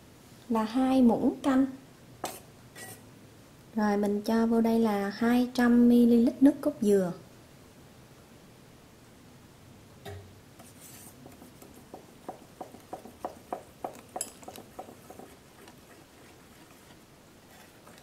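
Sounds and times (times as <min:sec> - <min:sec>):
whisk clicking against bowl: 0:11.2 - 0:18.0.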